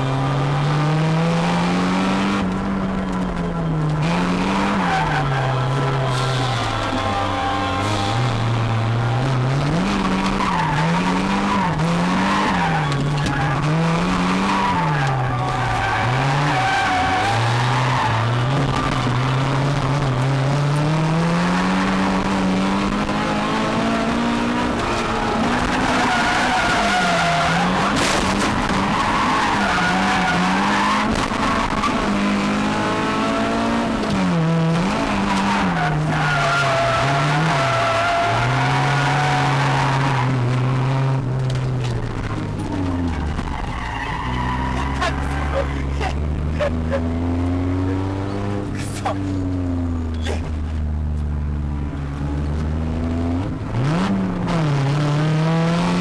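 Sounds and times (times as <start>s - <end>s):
car engine revving: 0.0s - 56.0s
tyres squealing: 35.2s - 40.4s, 41.8s - 48.0s.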